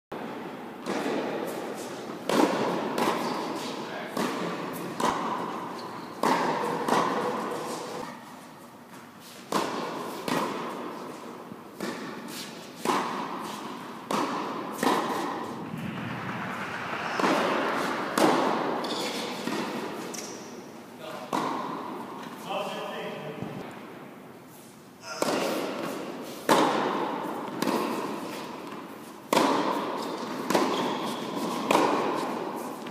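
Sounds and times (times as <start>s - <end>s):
racket hitting tennis ball: 0.8s - 7.9s, 9.5s - 11.2s, 11.8s - 15.6s, 18.2s - 20.5s, 21.3s - 22.1s, 25.2s - 32.6s
tennis ball bouncing: 14.1s - 15.4s.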